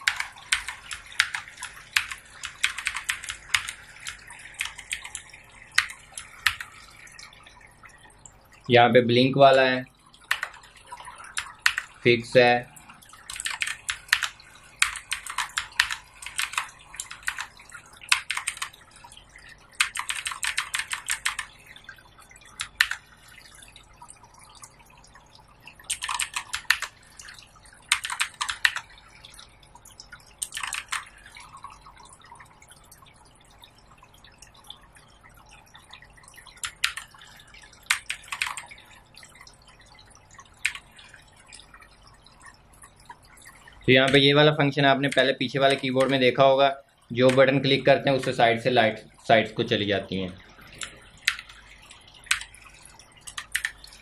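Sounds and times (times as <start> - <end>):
mechanical keyboard clicking: 0.0 - 5.2, 10.3 - 10.6, 11.4 - 11.9, 13.3 - 18.8, 19.8 - 21.5, 22.6 - 23.0, 25.9 - 26.9, 27.9 - 28.8, 30.4 - 31.1, 36.6 - 37.1, 37.9 - 38.7, 52.3 - 52.5, 53.3 - 53.8.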